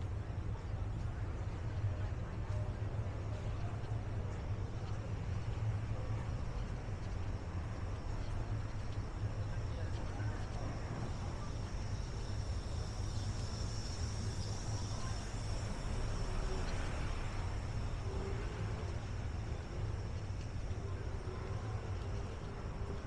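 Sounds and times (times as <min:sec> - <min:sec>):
faint high-pitched whine: 0:00.0 - 0:23.0
distant traffic rumble: 0:05.2 - 0:23.0.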